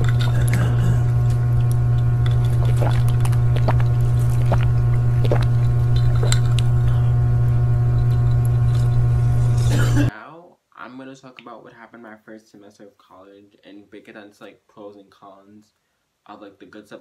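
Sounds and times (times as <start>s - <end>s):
loud low hum: 0.0s - 10.1s.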